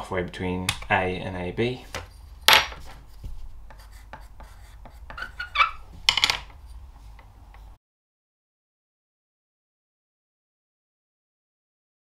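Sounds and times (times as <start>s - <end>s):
pencil scratching ceramic tile: 1.9s - 7.7s
tile clattering on metal: 2.0s - 3.0s, 6.0s - 6.6s.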